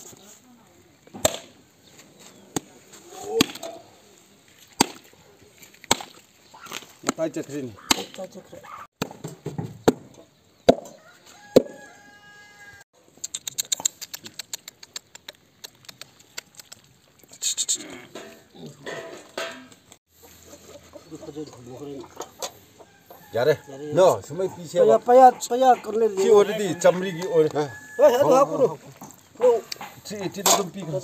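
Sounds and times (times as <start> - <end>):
knife chopping through carcass: 4.8 - 5.0, 5.9 - 6.2, 7.8 - 8.2
puppy lapping on plastic: 13.5 - 17.3
people talking: 23.4 - 31.0.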